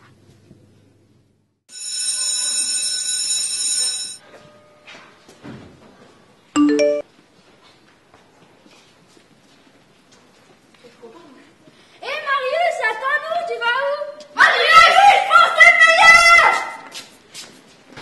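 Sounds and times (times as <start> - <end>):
phone ringing tone: 1.7 - 4.8, 6.6 - 7.0
message alert chime: 6.6 - 7.0.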